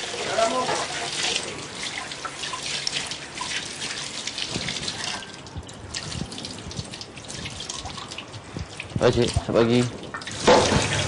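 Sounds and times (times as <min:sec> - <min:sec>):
tap running into sink: 0:08.6 - 0:11.0.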